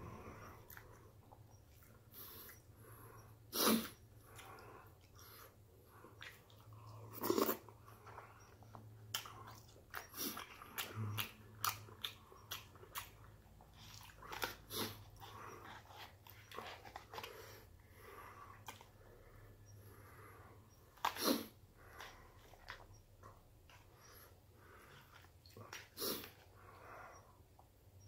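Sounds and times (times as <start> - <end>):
chewing: 0.4 - 2.7, 3.8 - 17.7.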